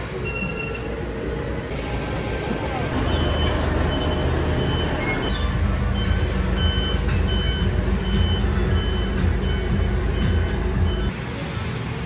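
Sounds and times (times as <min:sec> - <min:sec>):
large vehicle engine rumbling: 0:00.0 - 0:12.0
high electronic beeps: 0:03.0 - 0:11.1.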